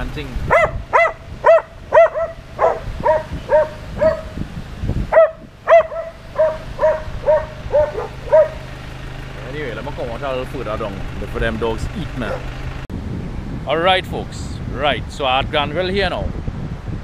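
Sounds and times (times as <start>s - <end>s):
dog barking: 0.5s - 4.4s, 5.1s - 8.7s.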